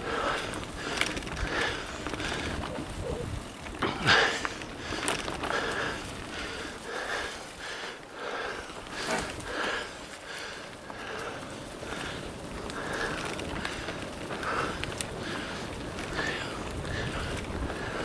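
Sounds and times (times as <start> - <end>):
bike tyres rolling and rattling: 0.0 - 18.0
rider breathing hard: 0.0 - 18.0
wind on microphone: 0.3 - 6.7, 12.5 - 18.0.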